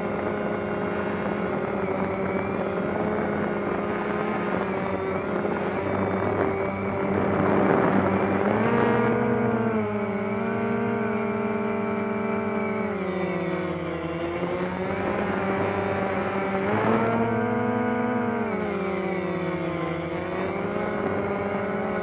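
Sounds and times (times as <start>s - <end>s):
drone motors and propellers whining: 0.0s - 22.0s.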